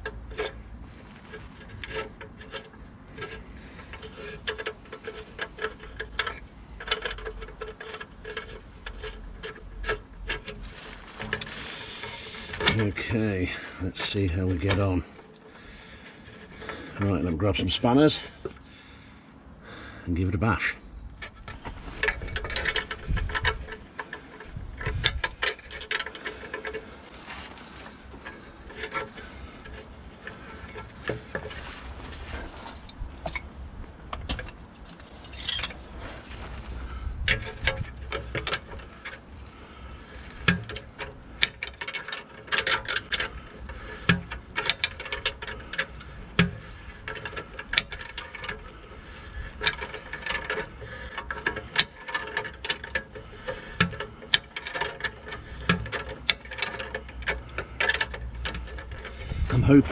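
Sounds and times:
spanners clicking on nuts: 1.3 - 15.5, 37.3 - 59.9.

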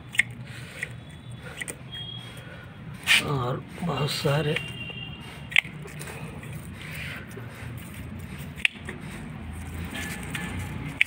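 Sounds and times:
pruning shears snipping: 4.4 - 11.0.

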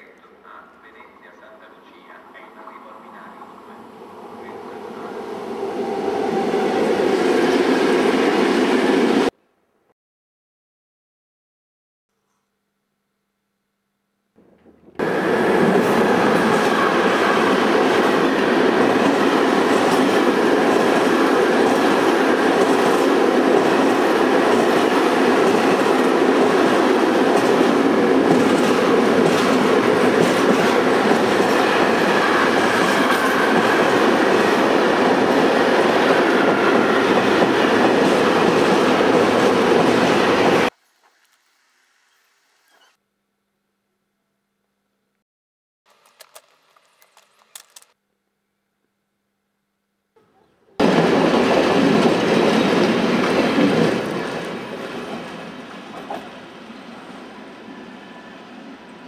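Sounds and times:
train rolling on rails: 14.9 - 40.7, 50.8 - 59.0.

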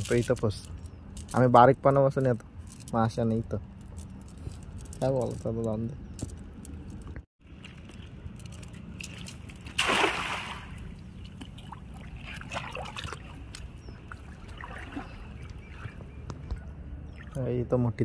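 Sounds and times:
water trickling and sloshing: 7.1 - 18.0
cast net splashing into water: 8.9 - 13.5, 14.1 - 15.9.

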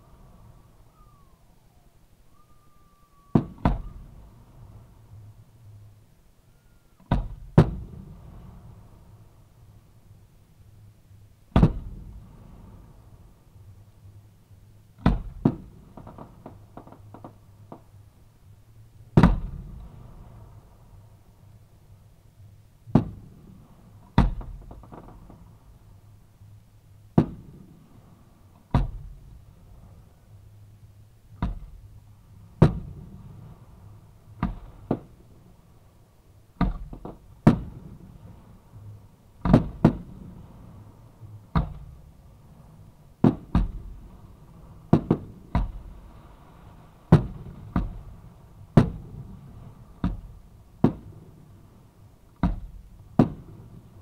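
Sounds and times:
fireworks bangs: 3.2 - 4.3, 36.6 - 38.2, 39.4 - 40.4, 44.8 - 51.3, 52.4 - 53.9.

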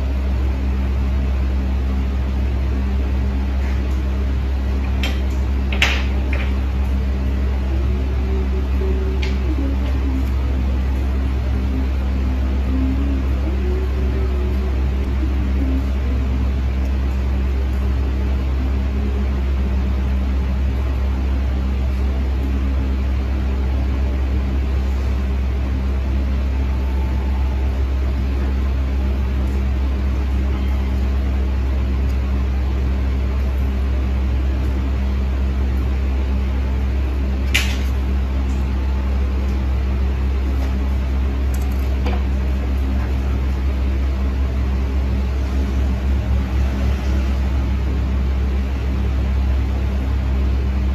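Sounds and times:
machine electric hum: 0.0 - 50.9.

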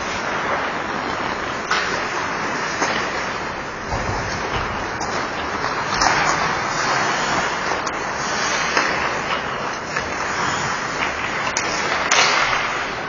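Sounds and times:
skates scraping ice: 0.0 - 13.0
clicks of hockey sticks or puck: 7.3 - 12.9.

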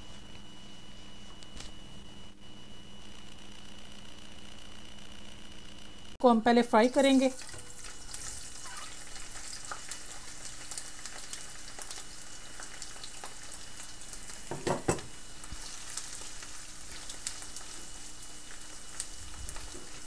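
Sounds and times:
vegetables sizzling in hot oil: 6.6 - 20.0
knock against pan: 14.5 - 15.1.

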